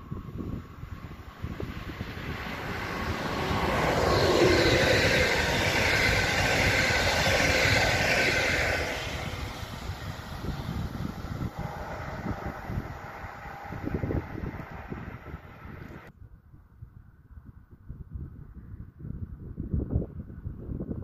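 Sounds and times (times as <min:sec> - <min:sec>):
electric train passing: 0:00.0 - 0:16.1
wheels on rails: 0:00.4 - 0:16.1.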